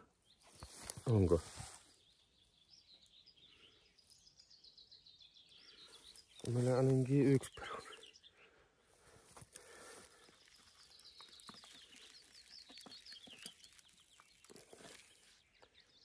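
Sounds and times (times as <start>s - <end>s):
rustling of soil and stems: 0.3s - 3.0s, 5.7s - 7.8s, 8.8s - 16.0s.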